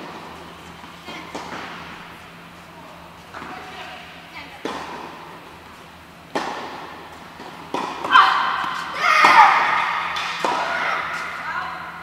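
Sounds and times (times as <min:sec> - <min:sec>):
tennis ball hits and bounces: 0:00.0 - 0:02.1, 0:04.6 - 0:05.2, 0:06.3 - 0:11.3.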